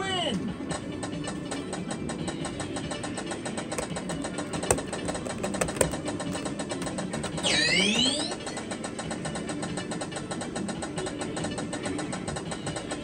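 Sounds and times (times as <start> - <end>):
loud clicks: 3.8 - 8.3.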